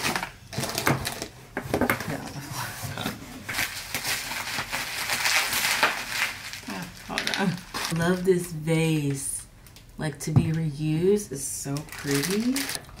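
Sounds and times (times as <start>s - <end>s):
plastic packaging crinkling: 3.5s - 8.2s, 11.8s - 13.0s.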